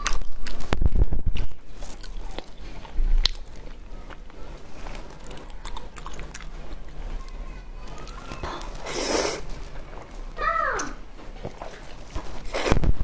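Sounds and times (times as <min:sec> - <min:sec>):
person chewing noodles: 0:00.0 - 0:00.8, 0:01.4 - 0:10.2.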